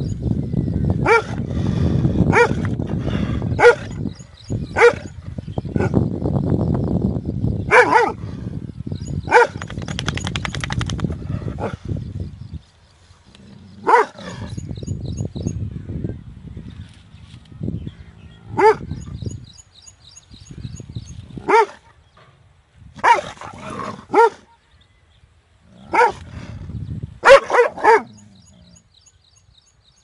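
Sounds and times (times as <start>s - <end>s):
large dog barking: 1.0s - 1.4s, 2.3s - 2.6s, 3.6s - 4.0s, 4.8s - 5.2s, 7.7s - 8.2s, 13.8s - 14.3s, 18.6s - 18.9s, 21.4s - 21.9s, 23.0s - 24.6s, 25.8s - 26.2s, 27.2s - 28.2s.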